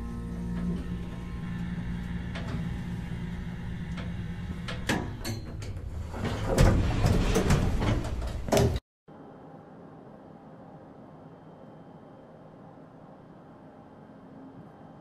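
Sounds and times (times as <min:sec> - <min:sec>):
elevator clunks: 0:00.0 - 0:08.8
elevator doors sliding open: 0:00.0 - 0:08.8
elevator low hum: 0:00.0 - 0:08.8.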